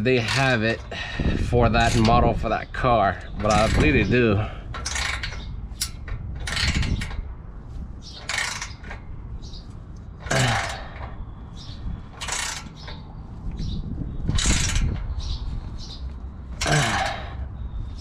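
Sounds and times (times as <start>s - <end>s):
ratchet wrench clicking: 12.2s - 12.9s.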